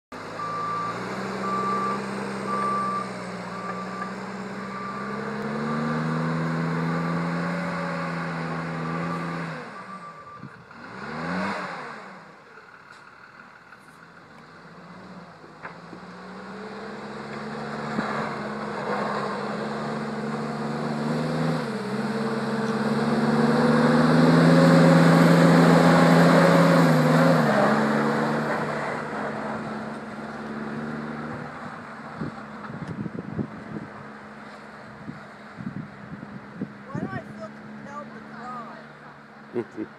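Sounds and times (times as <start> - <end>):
diesel engine working: 0.1 - 39.9
reversing alarm beeping: 0.4 - 6.0.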